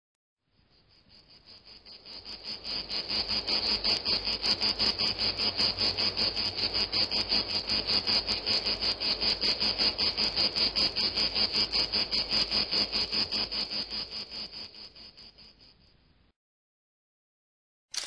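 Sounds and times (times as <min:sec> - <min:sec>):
insect chirping: 0:00.4 - 0:16.3.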